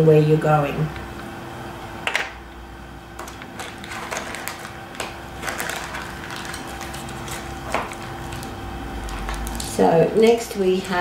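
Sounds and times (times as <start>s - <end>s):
faint steady hum: 0.0s - 11.0s
plastic bags crinkling: 3.2s - 9.8s.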